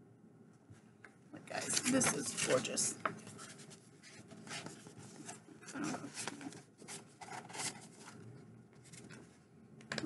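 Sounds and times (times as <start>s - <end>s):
book cover rustling: 1.6s - 9.4s.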